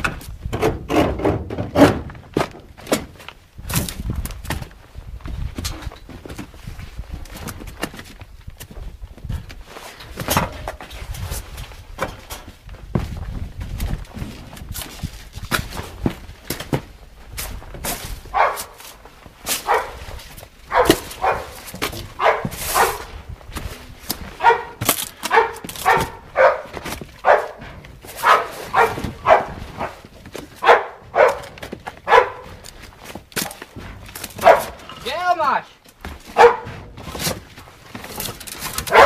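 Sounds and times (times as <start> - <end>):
footsteps on broken debris: 2.0 - 39.0
dog barking: 18.3 - 18.8, 19.6 - 20.0, 20.7 - 21.6, 22.2 - 23.1, 24.4 - 27.6, 28.2 - 30.0, 30.6 - 32.5, 34.4 - 34.8, 36.4 - 36.7.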